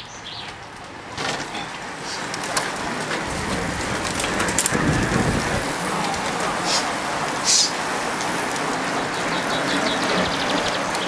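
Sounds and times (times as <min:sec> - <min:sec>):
bicycle tyres hissing on tarmac: 0:01.9 - 0:11.0.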